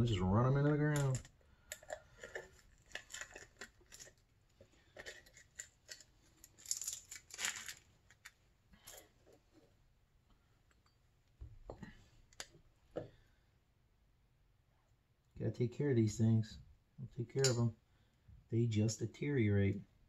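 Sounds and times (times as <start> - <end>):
small clicks and scrapes: 0.9 - 9.8.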